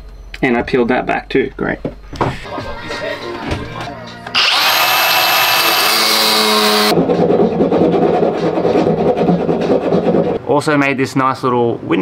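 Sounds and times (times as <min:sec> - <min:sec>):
power grinder whining: 0:04.3 - 0:07.0
grinder rasping through metal: 0:04.4 - 0:07.0.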